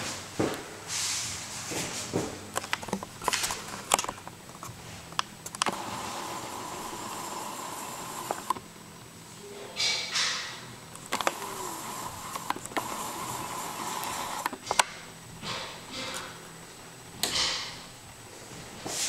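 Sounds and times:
camera zoom motor whirring: 0:05.5 - 0:08.6, 0:10.9 - 0:14.8.

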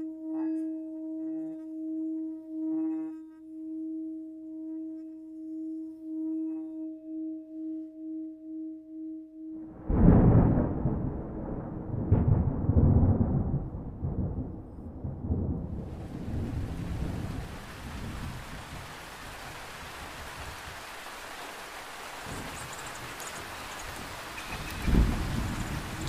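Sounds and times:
thunder rumbling: 0:09.7 - 0:20.8, 0:22.2 - 0:26.0
heavy rain hiss: 0:15.8 - 0:26.0.

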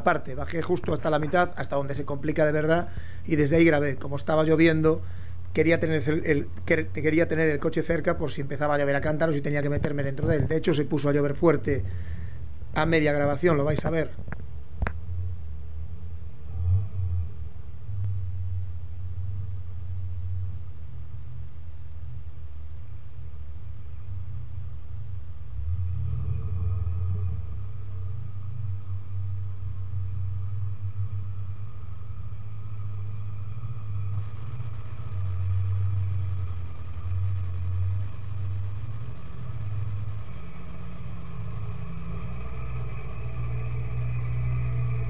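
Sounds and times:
engine rumbling at low revs: 0:00.0 - 0:45.0.

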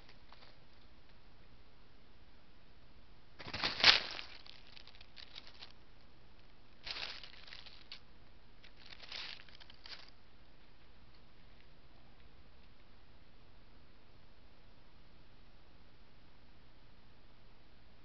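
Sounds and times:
rustling in dry leaves: 0:03.4 - 0:05.8, 0:06.8 - 0:08.0, 0:08.6 - 0:10.1.

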